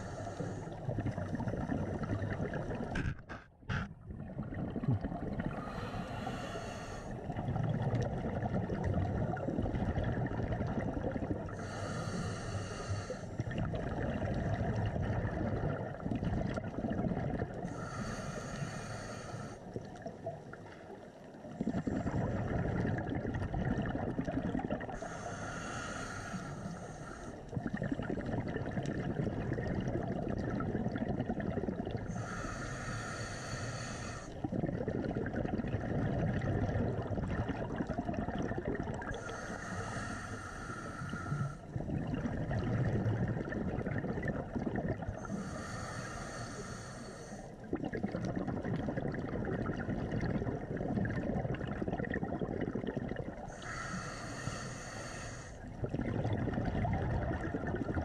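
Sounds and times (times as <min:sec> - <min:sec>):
underwater bubbling rumble: 0:00.0 - 0:58.0
regulator breath hiss: 0:05.6 - 0:07.2, 0:11.6 - 0:13.3, 0:17.7 - 0:19.6, 0:25.0 - 0:27.4, 0:32.1 - 0:34.4, 0:39.2 - 0:41.6, 0:45.2 - 0:47.5, 0:53.5 - 0:55.6.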